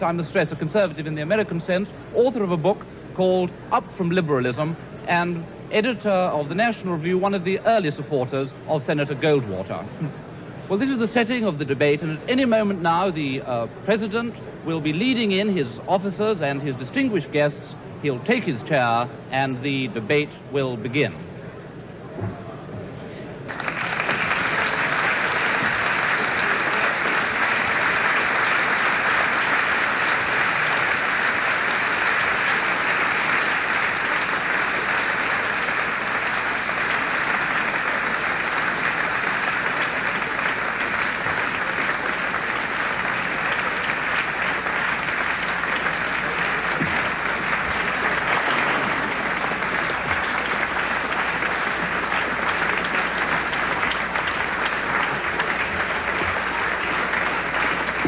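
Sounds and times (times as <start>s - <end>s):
audience applauding: 23.5s - 58.0s.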